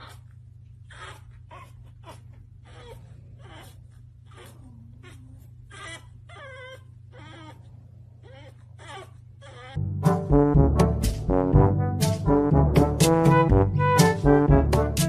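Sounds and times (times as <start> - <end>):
puppy whining and whimpering: 0.0 - 9.8
low steady hum: 0.0 - 14.9.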